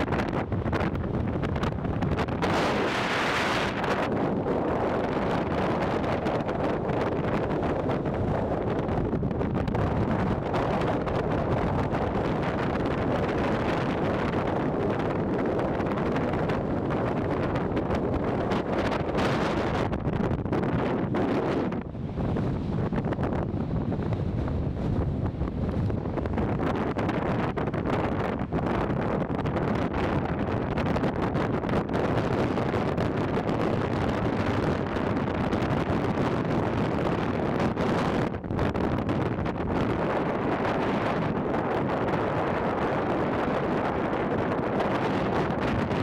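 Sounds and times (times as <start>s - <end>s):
strong wind buffeting microphone: 0.0s - 46.0s.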